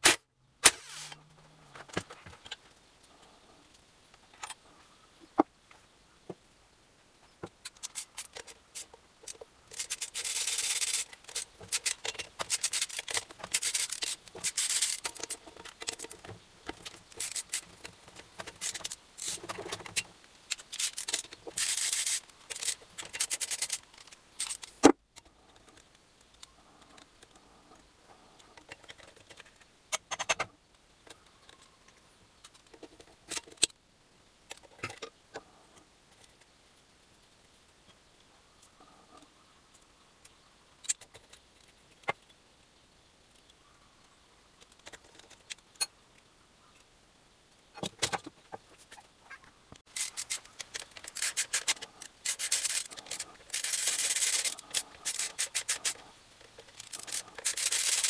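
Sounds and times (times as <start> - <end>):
rubbing strokes: 0.6 - 1.2, 49.9 - 58.0.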